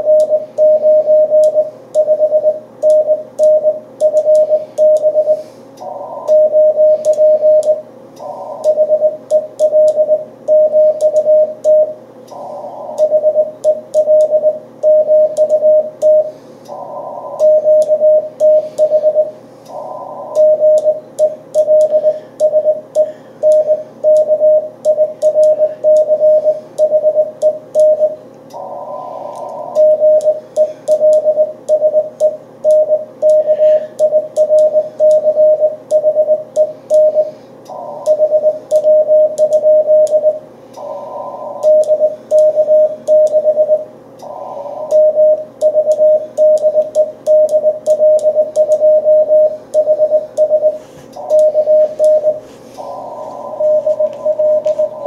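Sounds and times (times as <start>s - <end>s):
morse code tone: 0.0s - 55.0s
radio band noise hissing: 4.5s - 7.6s, 8.2s - 8.8s, 12.3s - 13.2s, 16.3s - 17.7s, 18.4s - 20.6s, 28.5s - 30.9s, 33.4s - 34.0s, 36.7s - 38.7s, 40.6s - 42.3s, 44.2s - 45.1s, 50.7s - 55.0s.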